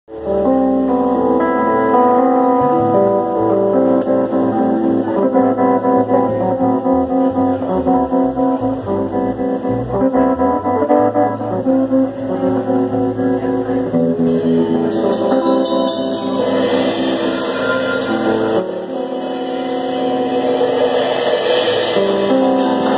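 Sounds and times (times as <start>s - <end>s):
electric guitars: 0.1s - 22.9s
live band playing instrumental: 0.1s - 22.9s.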